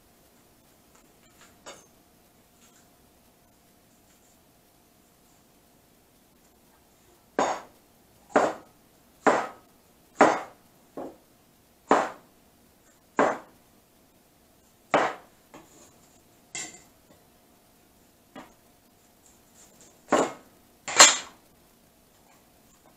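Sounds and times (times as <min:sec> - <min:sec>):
knife chopping on cutting board: 0:07.4 - 0:07.7, 0:08.3 - 0:09.6, 0:10.2 - 0:11.2, 0:11.9 - 0:12.2, 0:13.2 - 0:13.5, 0:14.9 - 0:15.7, 0:20.1 - 0:21.3.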